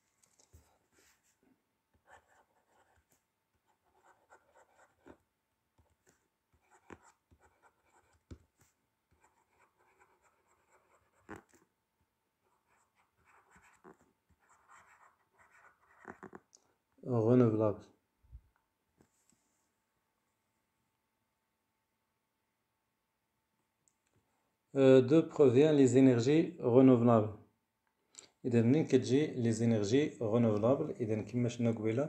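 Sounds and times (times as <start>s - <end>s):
pen scratching on paper: 2.0s - 5.2s, 5.8s - 11.7s, 12.4s - 16.5s.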